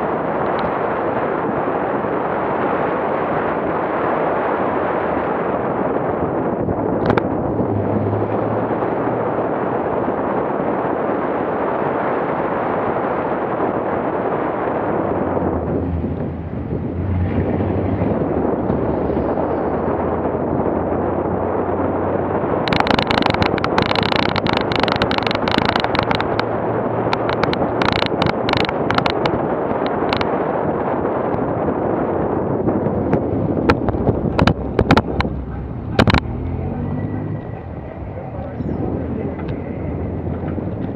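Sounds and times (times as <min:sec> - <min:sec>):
vehicle engine: 0:00.0 - 0:40.9
wind rush and road noise: 0:00.0 - 0:40.9
sharp knocks and rattles: 0:22.7 - 0:29.4, 0:33.0 - 0:36.5.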